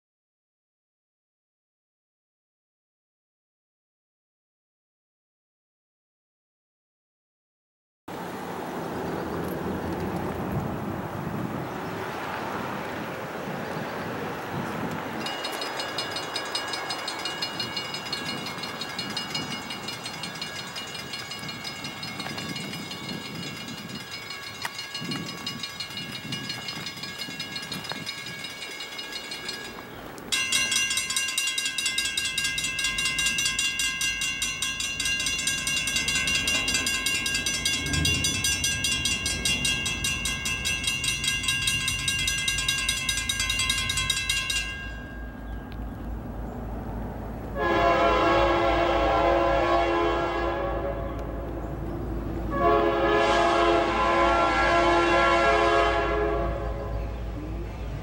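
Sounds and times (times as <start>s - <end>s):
crossing bell ringing: 15.1s - 46.6s
train air horn blasts: 36.4s - 39.4s, 47.6s - 51.5s, 52.5s - 57.1s.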